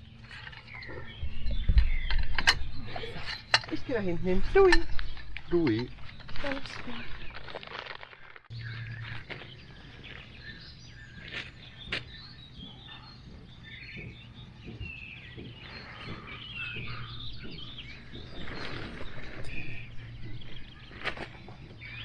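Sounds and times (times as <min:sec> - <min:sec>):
small birds chirping: 0:00.0 - 0:07.8, 0:08.5 - 0:22.0
steady low hum: 0:08.4 - 0:22.0.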